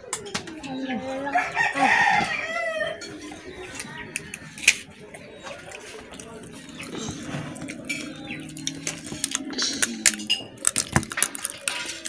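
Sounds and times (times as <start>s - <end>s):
rooster crowing: 1.2s - 3.1s.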